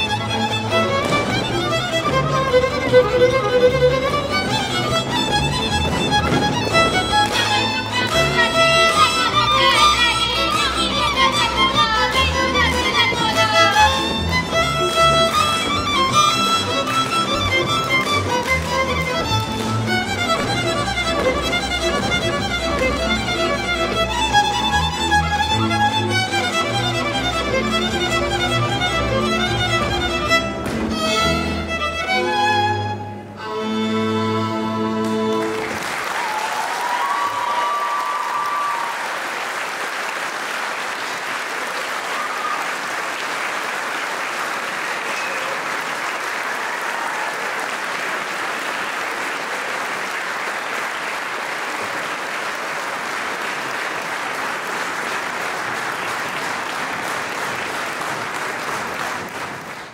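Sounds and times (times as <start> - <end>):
audience applause: 0.0 - 27.3, 35.3 - 59.9
folk band with fiddles and bass: 0.0 - 35.8.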